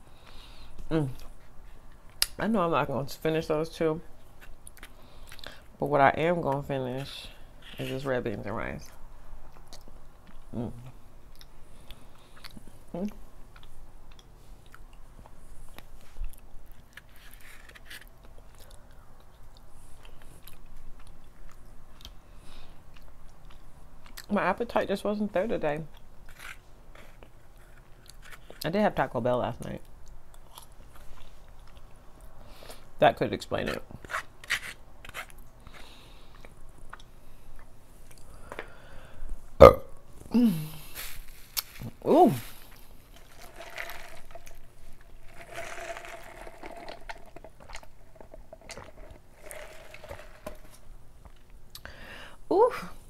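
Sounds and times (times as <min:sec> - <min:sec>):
chewing with mouth clicks: 0:09.4 - 0:10.5, 0:11.3 - 0:17.1, 0:35.0 - 0:38.3
close-up chewing: 0:11.3 - 0:24.3, 0:42.5 - 0:51.8
loud burp: 0:39.6 - 0:40.0.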